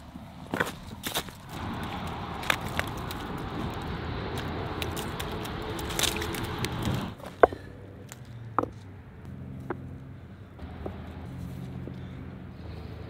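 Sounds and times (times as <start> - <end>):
steady rush of noise: 0.0 - 7.5
ice crunching and cracking: 0.4 - 7.2
stones clacking together: 0.5 - 1.6, 4.4 - 8.8.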